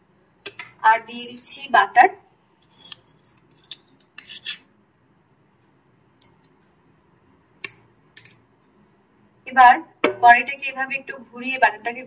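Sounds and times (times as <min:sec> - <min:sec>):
spoon scraping and clinking in pan: 0:04.2 - 0:04.7.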